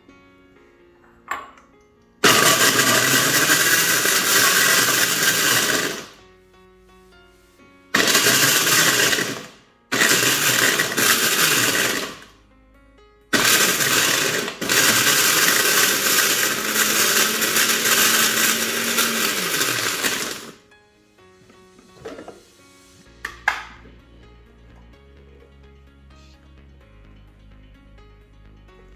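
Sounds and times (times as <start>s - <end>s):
blender crushing ice: 2.2s - 6.2s, 8.0s - 12.3s, 13.3s - 20.6s.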